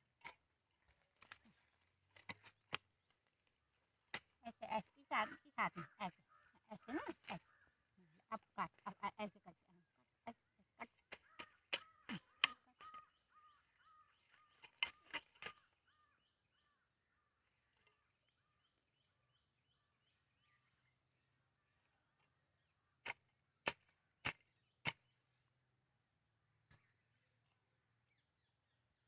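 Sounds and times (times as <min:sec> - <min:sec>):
faint repeated bird calls: 0:00.0 - 0:29.0
sickle snapping plant stems: 0:00.2 - 0:04.4, 0:10.9 - 0:13.0, 0:14.3 - 0:15.7.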